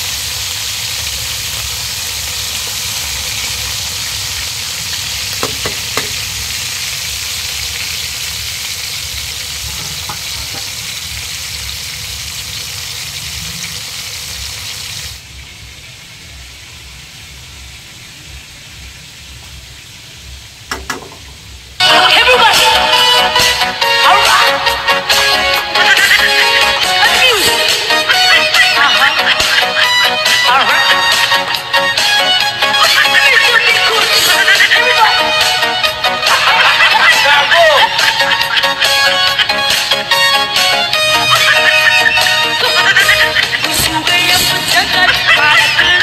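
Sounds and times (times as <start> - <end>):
fish sizzling in hot oil: 0.0 - 21.9, 27.7 - 45.7
knocks: 5.4 - 6.2, 20.7 - 21.4.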